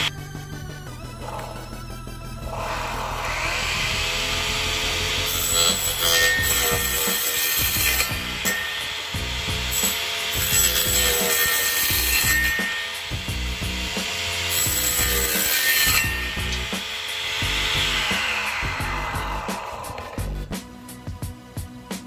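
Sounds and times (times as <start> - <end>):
saw motor whine: 0.0 - 20.6
saw rasping through plastic: 2.6 - 20.2.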